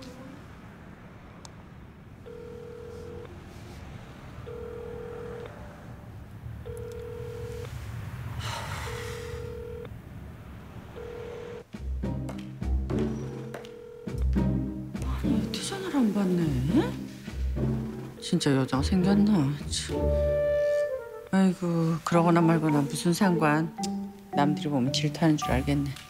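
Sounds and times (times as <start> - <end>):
telephone ringback beep: 2.3 - 3.3, 4.5 - 5.5, 6.7 - 7.6, 9.0 - 9.9, 11.0 - 11.6.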